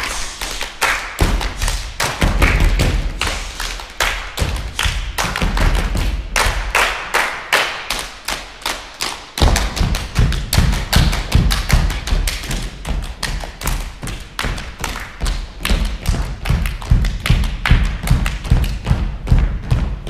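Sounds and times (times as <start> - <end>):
hand claps: 0.0 - 19.6
heavy low stomps: 1.2 - 3.4, 9.4 - 20.0
foot stomps on wooden floor: 15.6 - 20.0.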